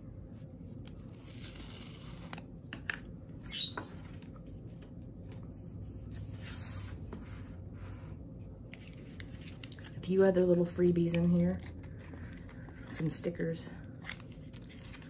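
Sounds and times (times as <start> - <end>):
packaging rustling: 14.0 - 15.0.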